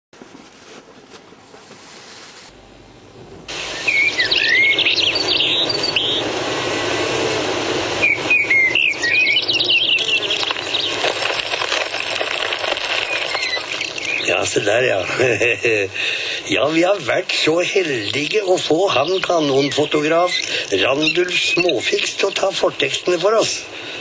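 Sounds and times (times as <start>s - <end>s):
steady hiss: 1.7s - 24.0s
bird-like chirping and whistling: 3.6s - 7.0s, 8.0s - 11.0s, 13.0s - 14.4s, 18.2s - 22.6s.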